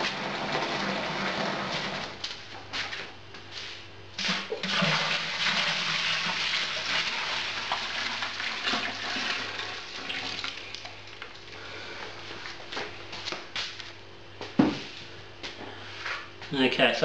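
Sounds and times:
liquid pouring into metal boiler: 0:04.2 - 0:11.0.

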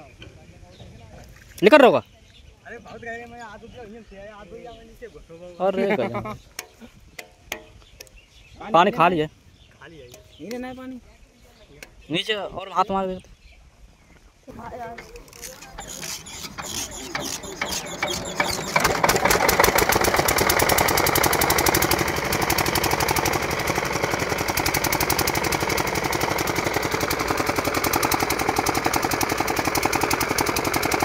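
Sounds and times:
diesel engine starting and running: 0:14.5 - 0:31.0.

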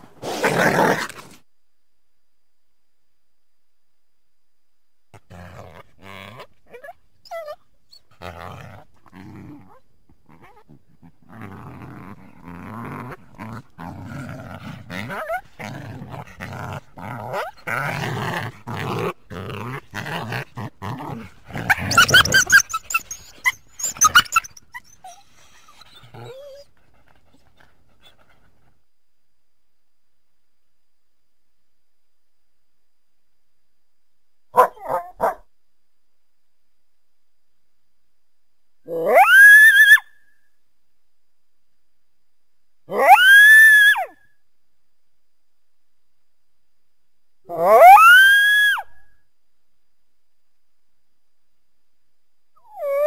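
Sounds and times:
coyote barking and growling: 0:05.1 - 0:28.8, 0:34.5 - 0:35.5, 0:38.8 - 0:40.2, 0:42.8 - 0:44.2, 0:47.4 - 0:49.1, 0:52.6 - 0:53.0
coyote high-pitched yips: 0:21.9 - 0:25.2, 0:39.0 - 0:40.2.

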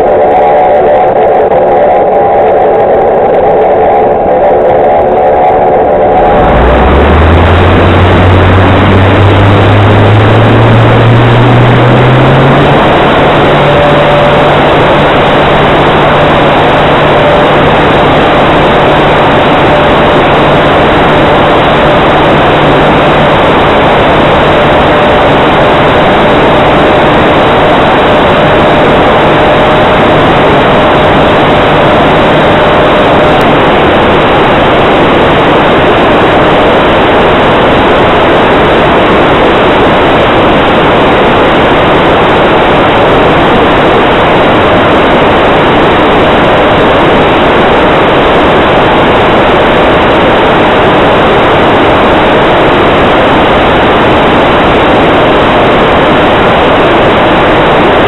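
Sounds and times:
propeller wash and wind rush: 0:05.3 - 0:58.0
electric motor and propeller whine: 0:05.6 - 0:49.8.

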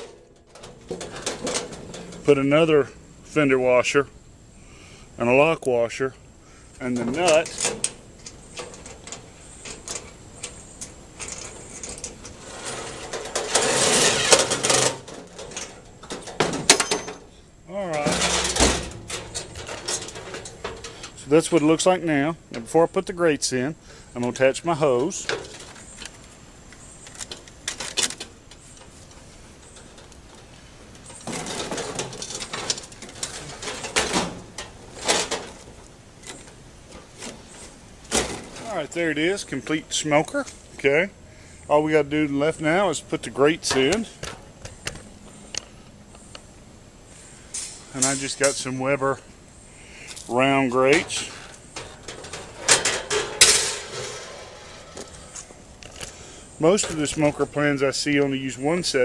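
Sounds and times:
aluminium hose crinkling: 0:00.0 - 0:03.4, 0:06.7 - 0:23.2, 0:24.2 - 0:41.0, 0:47.1 - 0:59.0
squeaky metal lid scrapes: 0:11.3 - 0:15.0, 0:51.0 - 0:55.5.

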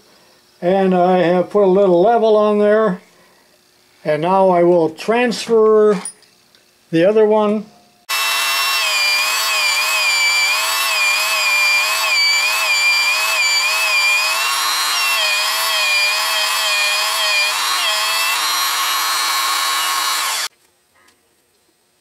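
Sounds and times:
electric drill drilling metal: 0:08.1 - 0:20.5.

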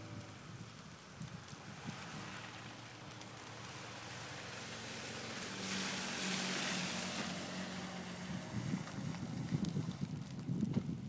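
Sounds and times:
car engine hum: 0:00.0 - 0:10.4
tyres hissing through snow: 0:01.5 - 0:08.7.

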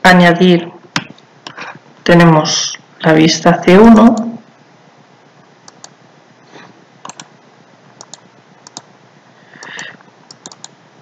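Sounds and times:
mouse buttons clicking: 0:07.0 - 0:07.3, 0:08.0 - 0:08.9, 0:09.6 - 0:10.7.

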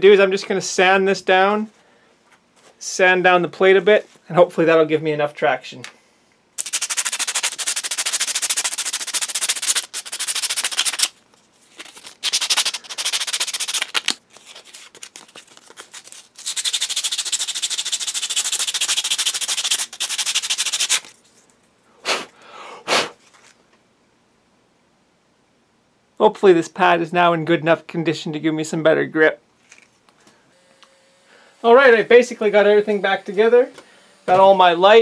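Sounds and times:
sandpaper scratching: 0:06.6 - 0:11.2, 0:11.8 - 0:21.2.

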